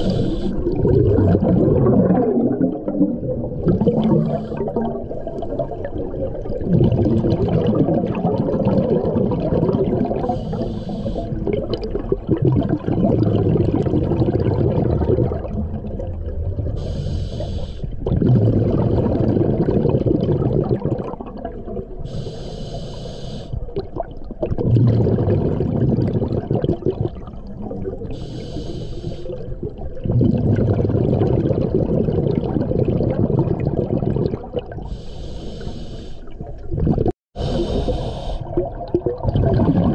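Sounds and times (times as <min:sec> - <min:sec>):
regulator inhale hiss: 0:00.0 - 0:00.6, 0:10.3 - 0:11.4, 0:16.8 - 0:17.9, 0:22.0 - 0:23.6, 0:28.1 - 0:29.4, 0:34.9 - 0:36.4, 0:37.4 - 0:38.5
exhaust bubbling underwater: 0:00.0 - 0:22.3, 0:23.6 - 0:35.0, 0:36.3 - 0:39.9.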